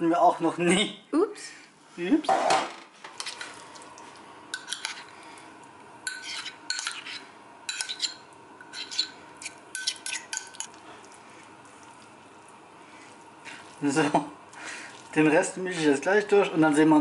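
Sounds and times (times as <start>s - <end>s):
spoon scraping a bowl: 4.6s - 5.1s, 6.0s - 10.8s.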